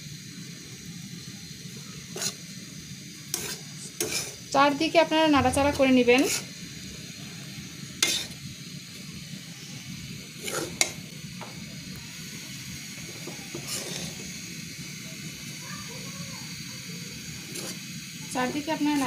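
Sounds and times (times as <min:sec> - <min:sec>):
steady hiss: 0:00.0 - 0:19.0
spatula scraping breadcrumbs: 0:02.1 - 0:02.4, 0:03.3 - 0:04.4, 0:08.0 - 0:08.4, 0:10.4 - 0:10.9, 0:13.5 - 0:14.2, 0:17.5 - 0:17.8.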